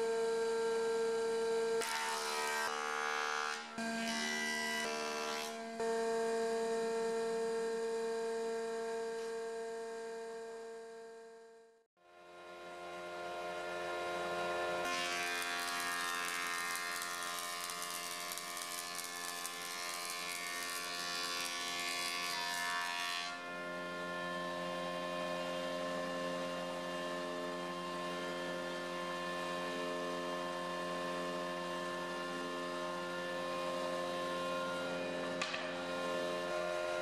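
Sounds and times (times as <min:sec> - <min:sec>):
sander motor hum: 0:12.2 - 0:22.3.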